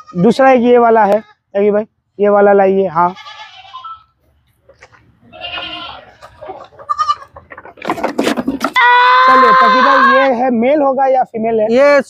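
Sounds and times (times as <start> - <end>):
goat kid bleating: 0.0 - 1.6, 3.0 - 4.2, 5.2 - 7.4, 8.7 - 10.4
clatter of knocks and rustling: 7.4 - 8.8.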